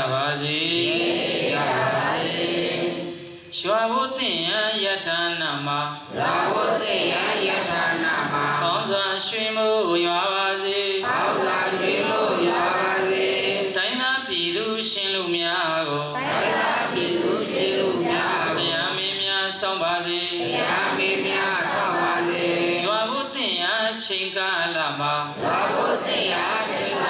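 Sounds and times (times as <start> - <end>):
person chanting through loudspeakers: 0.0 - 6.7, 7.4 - 16.2.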